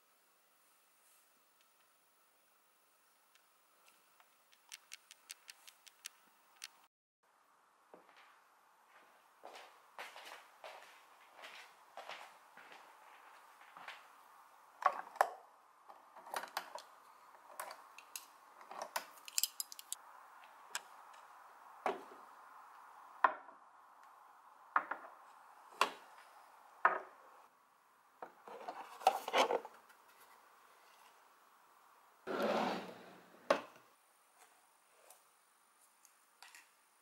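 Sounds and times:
small hard objects clinking: 0:19.1 - 0:20.0.

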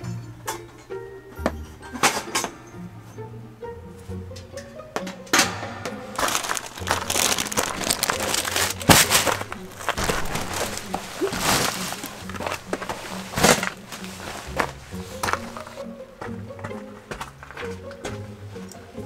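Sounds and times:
plastic packaging crinkling: 0:06.2 - 0:15.8.

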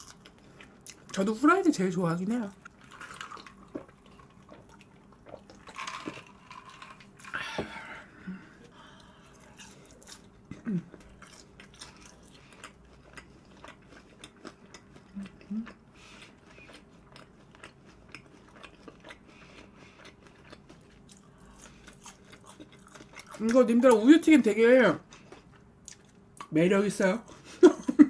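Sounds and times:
person chewing crunchy food: 0:00.0 - 0:01.2, 0:02.5 - 0:07.4, 0:08.1 - 0:23.7, 0:25.0 - 0:26.5
person humming: 0:15.1 - 0:15.7.

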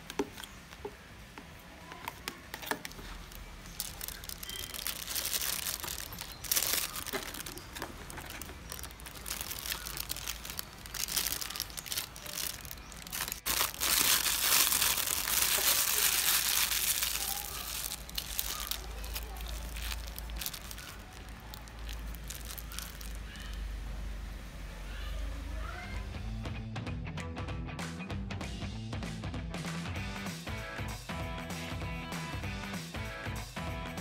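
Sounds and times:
plastic piping bag crinkling: 0:01.8 - 0:23.8.

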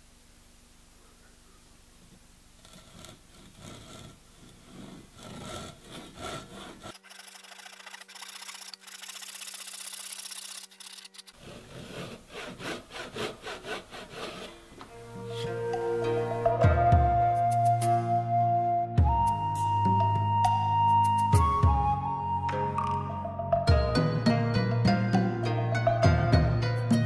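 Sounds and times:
hand saw cutting wood: 0:02.6 - 0:14.7.

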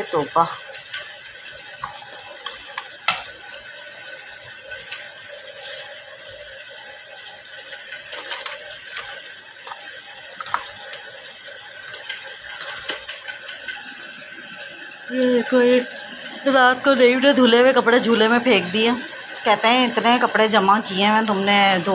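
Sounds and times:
steady background hum: 0:00.0 - 0:21.9
plastic packets rustling: 0:01.0 - 0:06.7, 0:07.4 - 0:15.0
items clicking and knocking on counter: 0:08.1 - 0:11.0.

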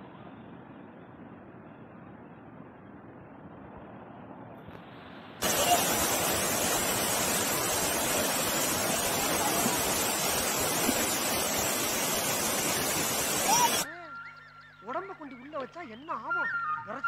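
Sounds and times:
waterfall rushing: 0:05.4 - 0:13.9.

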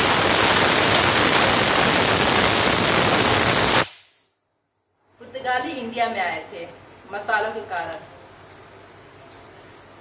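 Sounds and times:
pressure cooker whistle hissing: 0:00.0 - 0:04.1.

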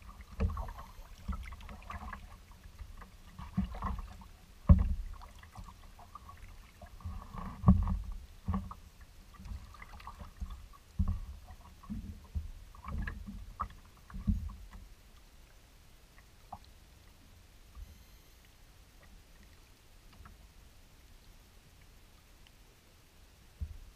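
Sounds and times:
paddle strokes splashing: 0:00.0 - 0:14.9
water sloshing: 0:00.0 - 0:15.0.

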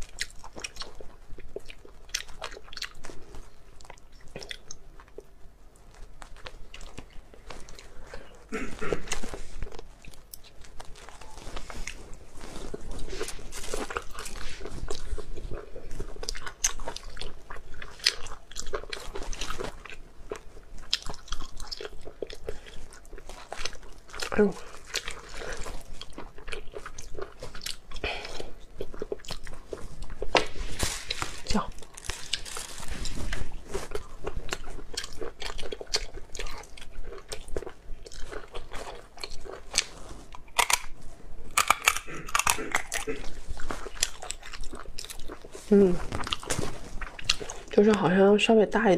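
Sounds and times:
person chewing and mouth smacks: 0:00.0 - 0:48.0
crunchy bites: 0:33.8 - 0:45.5.

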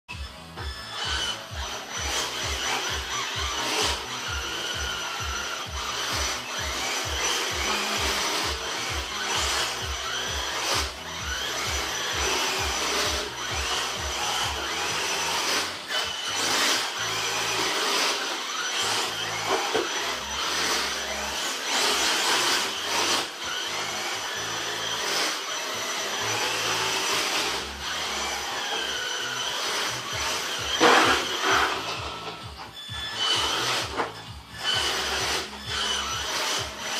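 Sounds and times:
rc car motor whining: 0:00.1 - 0:36.9.

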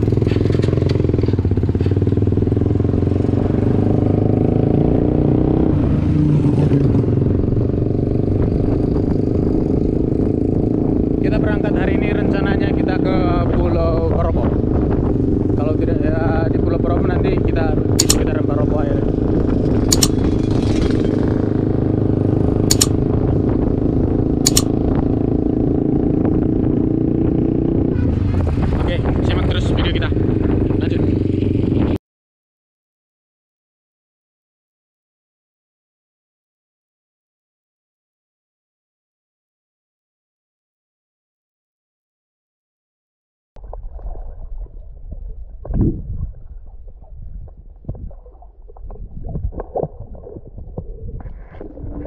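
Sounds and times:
motor engine running: 0:00.0 - 0:05.5, 0:06.4 - 0:32.0
short sharp clicks: 0:18.0 - 0:18.3, 0:19.9 - 0:20.3, 0:22.7 - 0:23.0, 0:24.5 - 0:24.7.

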